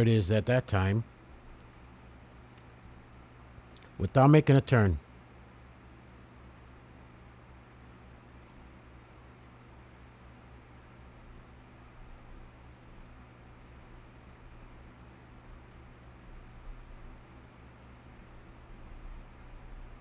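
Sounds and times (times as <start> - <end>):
low electrical hum: 0.0 - 20.0
light sharp ticks: 15.6 - 16.4.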